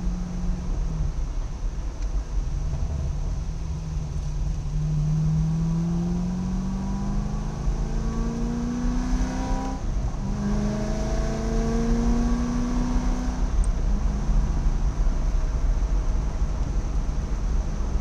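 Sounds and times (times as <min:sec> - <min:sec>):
steady low rumble: 0:00.0 - 0:09.1
car engine accelerating: 0:00.0 - 0:18.0.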